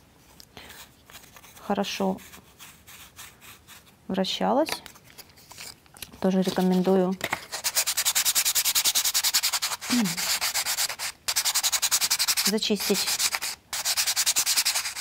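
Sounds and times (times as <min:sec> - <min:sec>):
sanding sponge rubbing plywood: 0:07.6 - 0:15.0.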